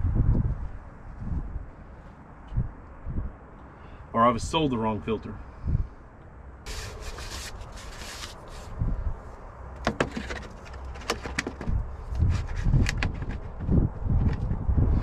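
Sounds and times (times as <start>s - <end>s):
filter scraping and rubbing: 6.7s - 8.7s.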